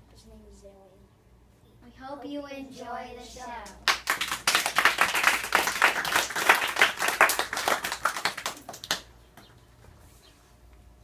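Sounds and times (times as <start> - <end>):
children clapping: 3.6 - 9.5.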